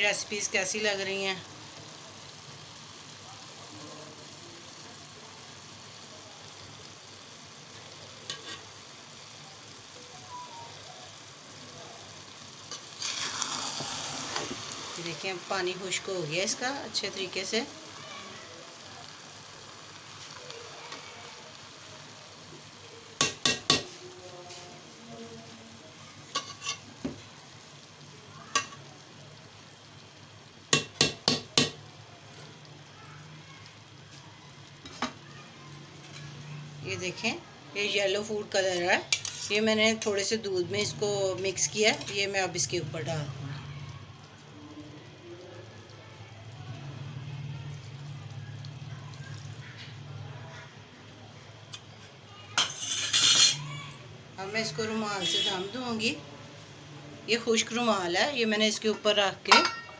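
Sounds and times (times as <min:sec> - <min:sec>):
pot of rice sizzling: 0:00.0 - 0:59.9
spatula stirring rice: 0:08.3 - 0:08.8, 0:12.7 - 0:16.0, 0:39.0 - 0:40.1, 0:52.6 - 0:53.6
spatula knocking metal pot: 0:59.5 - 0:59.9.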